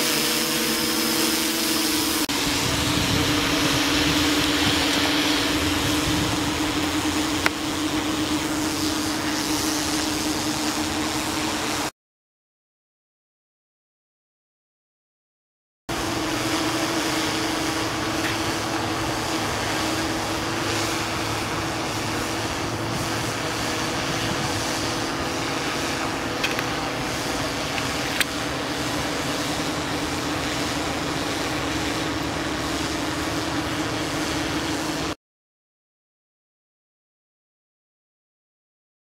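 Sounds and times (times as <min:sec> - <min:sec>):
drone propellers humming: 0:00.0 - 0:11.9, 0:15.9 - 0:35.2.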